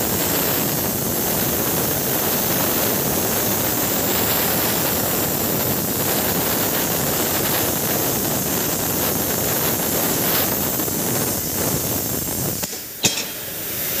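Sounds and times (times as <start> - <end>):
plasma cutter hissing: 0.0 - 14.0
sharp metal clank: 12.6 - 13.6.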